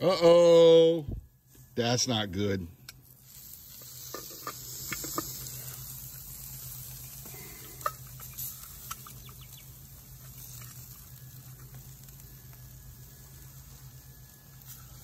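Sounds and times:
skillet sizzling and crackling: 1.5s - 15.0s.

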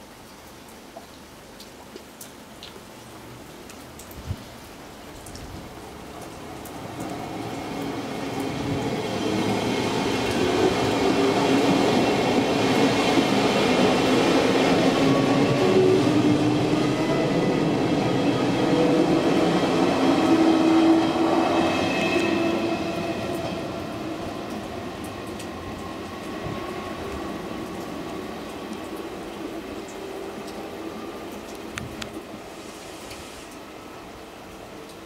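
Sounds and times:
train rumbling past on rails: 6.2s - 33.8s
train whining tones: 7.9s - 24.5s.

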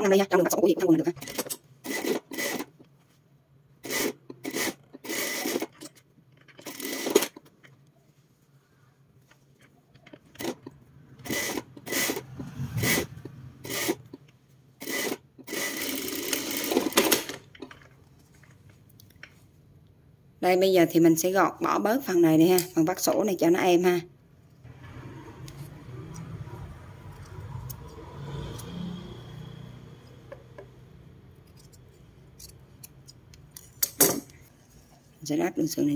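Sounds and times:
sewing machine stitching: 1.0s - 2.8s, 3.8s - 7.5s, 10.2s - 14.1s, 14.8s - 17.5s.

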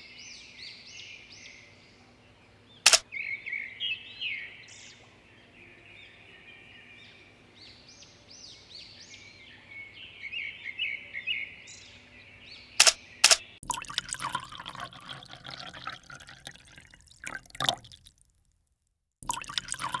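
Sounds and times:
sharp clicks: 12.8s - 13.5s
liquid pouring into glasses: 13.6s - 18.4s, 19.2s - 20.0s.

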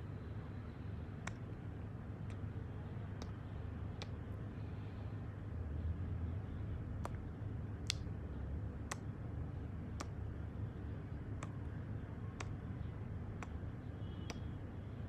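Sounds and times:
steady low hum: 0.0s - 15.0s
lip smacking kisses: 9.9s - 10.2s.

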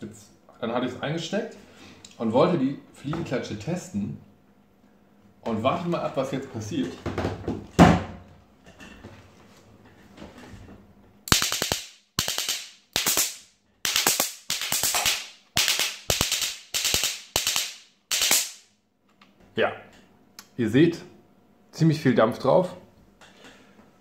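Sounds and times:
electric fly swatter crackling: 11.3s - 18.7s.

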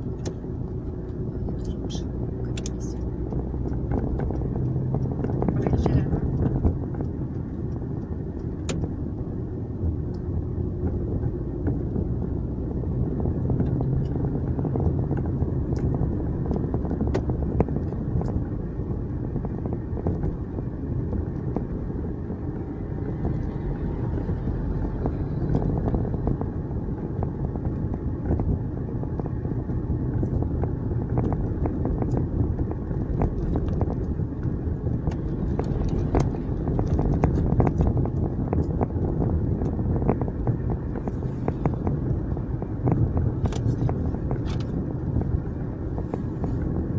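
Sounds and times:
engine and tyre rumble: 0.0s - 46.9s
light ticks: 1.1s - 9.0s.

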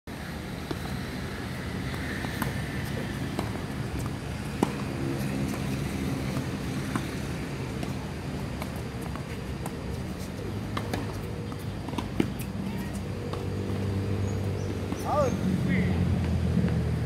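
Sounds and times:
tennis ball struck by rackets: 1.9s - 8.0s, 10.6s - 13.9s.

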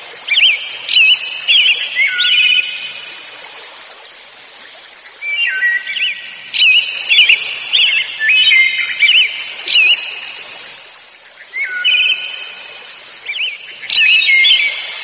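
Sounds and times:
steady hiss: 0.0s - 15.0s
small birds chirping: 4.6s - 15.0s.

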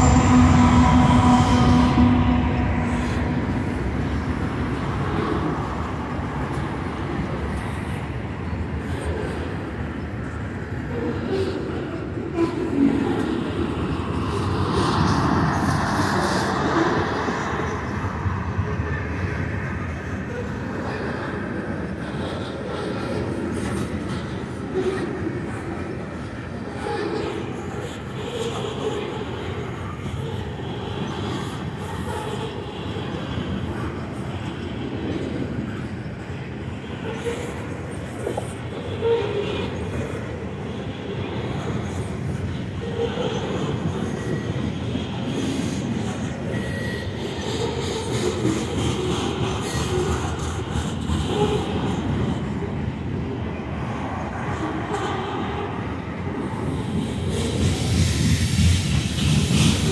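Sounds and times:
train knocks: 0.0s - 6.7s
freight train rolling on rails: 0.0s - 59.9s.

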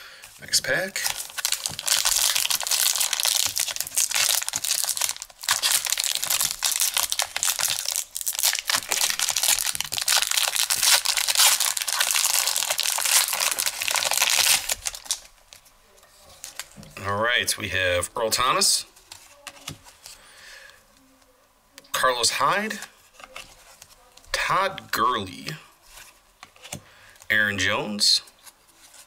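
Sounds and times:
wrapper crinkling and tearing: 0.8s - 15.6s.

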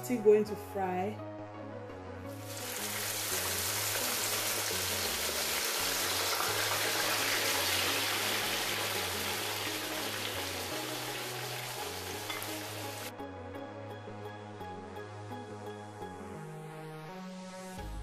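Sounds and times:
soft background music: 0.0s - 18.0s
food sizzling in frying oil: 2.3s - 13.1s.

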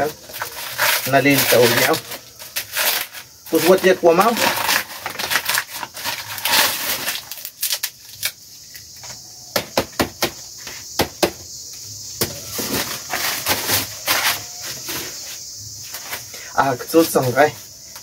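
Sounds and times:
corn husks crackling and tearing: 0.0s - 9.1s.

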